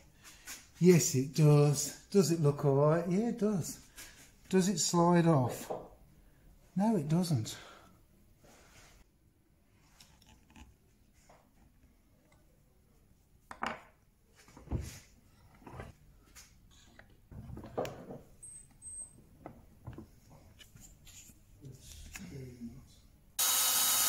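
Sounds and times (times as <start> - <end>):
wooden pieces knocking on workbench: 13.5 - 14.0.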